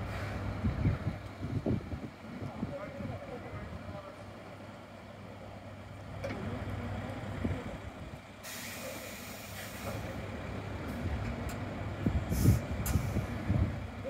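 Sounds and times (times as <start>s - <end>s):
diesel bus idling: 0.0s - 14.0s
compressed air hiss: 8.4s - 10.1s, 12.3s - 13.4s.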